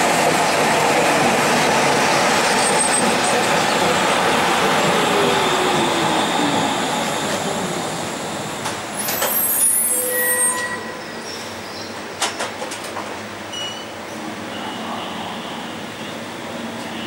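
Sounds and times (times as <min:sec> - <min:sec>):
train wheels rumbling on rail: 0:00.0 - 0:17.0
high brake squeals: 0:09.0 - 0:11.9, 0:13.5 - 0:14.8.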